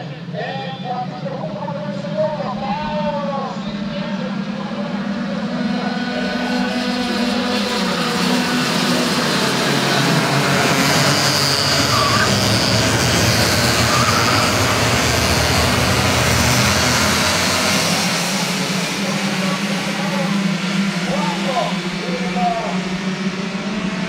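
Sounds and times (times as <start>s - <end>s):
racing kart engines whining: 0.0s - 24.0s.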